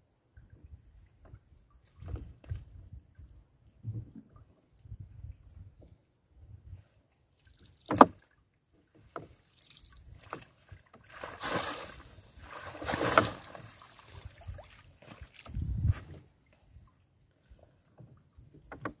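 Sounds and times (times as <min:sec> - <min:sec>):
wet net splashing and rustling: 0:09.4 - 0:16.2.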